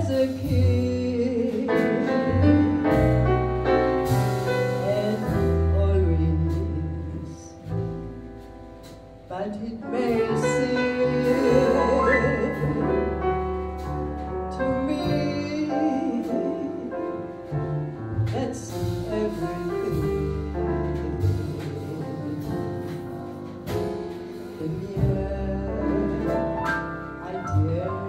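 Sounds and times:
double bass: 0.0s - 28.0s
piano: 0.0s - 28.0s
woman singing with vibrato: 9.4s - 13.2s.

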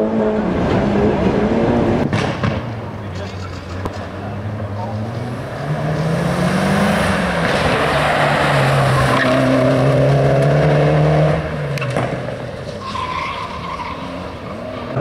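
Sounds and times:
race car engine at high revs: 0.0s - 2.1s, 3.8s - 12.8s.

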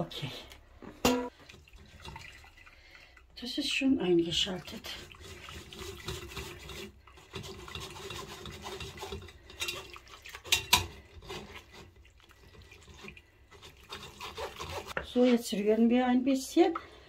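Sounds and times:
wire whisk scraping a metal sieve: 5.1s - 11.9s, 13.6s - 15.0s.

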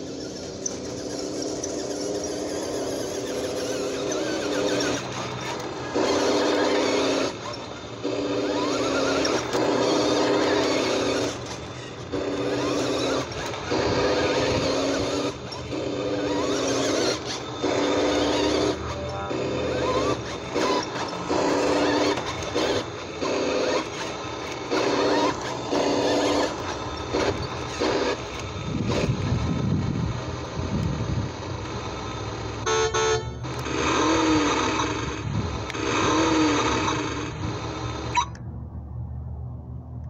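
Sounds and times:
toy truck horn honks: 32.6s - 34.3s.

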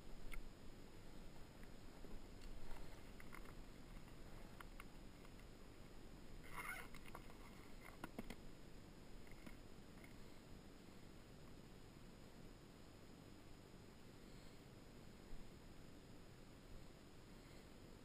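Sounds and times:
fishing gear clicks and knocks: 2.4s - 5.5s.

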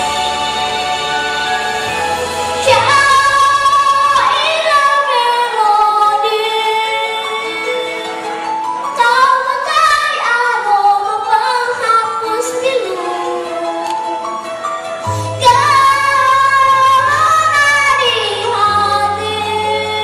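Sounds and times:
instrumental accompaniment: 0.0s - 20.0s
girl singing slow song: 15.2s - 20.0s.

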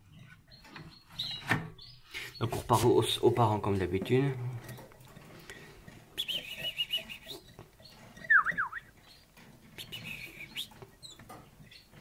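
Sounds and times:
canary chirps: 0.0s - 3.5s, 4.6s - 12.0s
buzzy bird trill: 6.2s - 12.0s.

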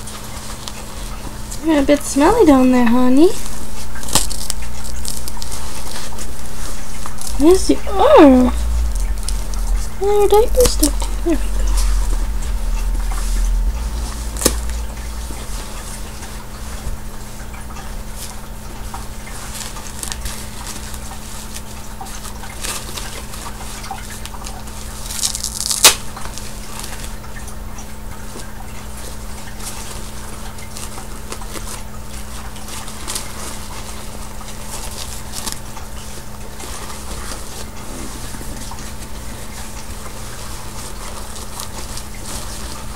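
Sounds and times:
diaper and cloth rustling: 0.0s - 8.9s, 10.0s - 12.4s, 29.0s - 42.9s
steady low hum: 0.0s - 42.9s.

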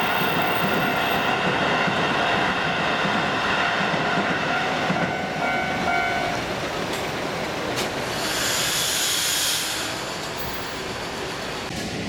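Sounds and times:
electric train rumbling: 0.0s - 12.0s
level crossing warning bell: 4.1s - 6.5s
loud hiss: 8.0s - 11.4s.

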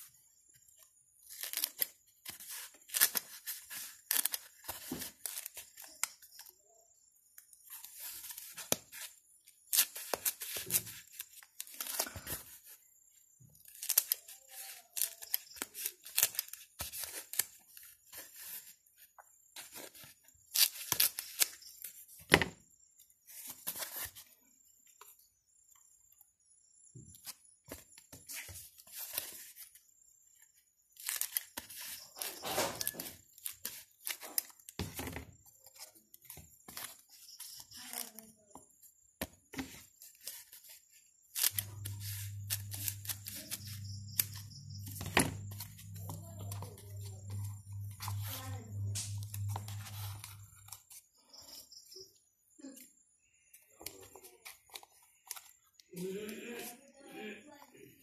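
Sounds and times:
scissors cutting foam: 41.3s - 50.7s.

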